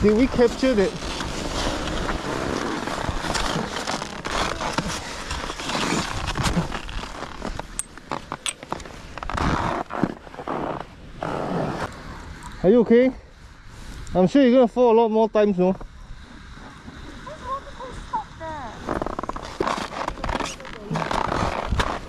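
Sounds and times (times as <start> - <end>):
skis scraping on snow: 0.0 - 12.0, 18.6 - 22.0
ski jacket rustling: 0.4 - 11.9.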